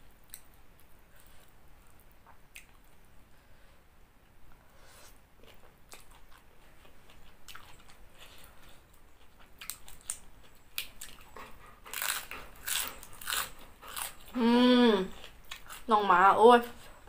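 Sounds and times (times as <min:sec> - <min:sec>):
chewing noodles: 0:05.4 - 0:14.4, 0:15.1 - 0:15.9
crunching bites of lettuce: 0:11.9 - 0:14.4.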